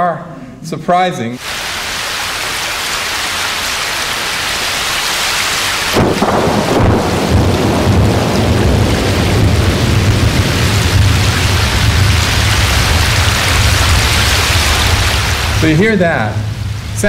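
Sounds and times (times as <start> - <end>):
steady underwater hiss: 1.4 - 7.7, 9.1 - 17.0
deep underwater rumble: 6.0 - 17.0.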